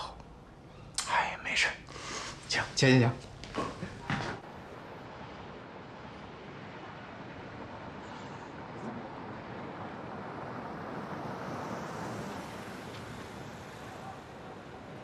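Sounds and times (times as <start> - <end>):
car tyre and road noise: 3.3 - 15.0.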